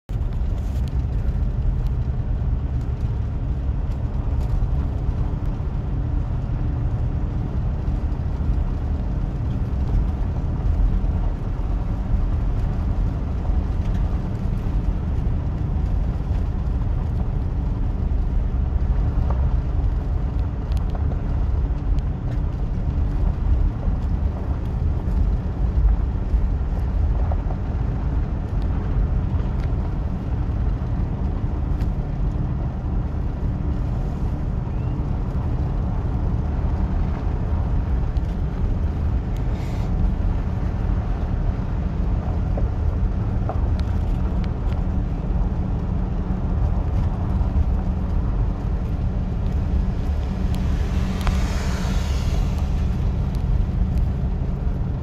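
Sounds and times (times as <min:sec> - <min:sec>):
car interior engine rumble: 0:00.1 - 0:55.0.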